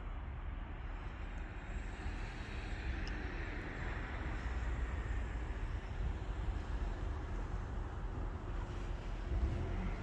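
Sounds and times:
outdoor rumble and hiss: 0.0 - 10.0.

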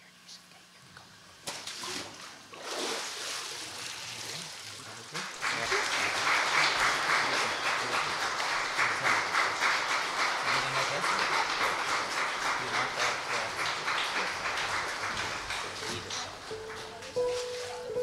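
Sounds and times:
congregation applauding: 5.2 - 18.0.

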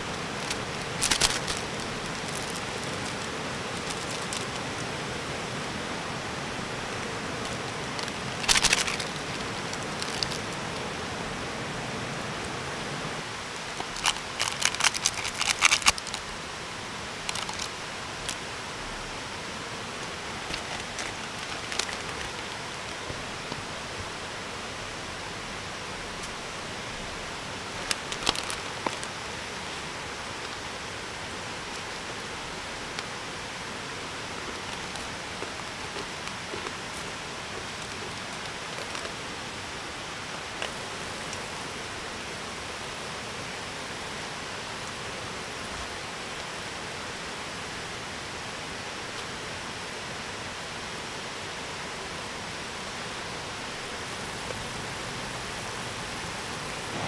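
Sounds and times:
plastic packets crinkling: 0.0 - 4.6, 8.0 - 10.6, 13.7 - 16.2, 17.3 - 18.4, 20.4 - 22.6, 27.8 - 29.1
heavy rain: 0.0 - 57.0
stream rushing: 0.0 - 57.0.

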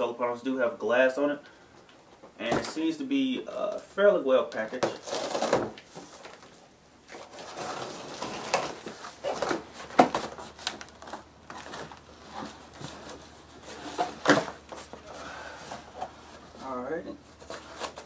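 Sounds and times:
cardboard box rustling and scraping: 7.1 - 18.0.

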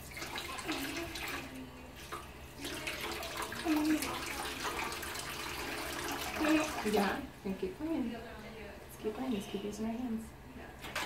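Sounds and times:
faucet running into steel sink: 0.0 - 7.2.

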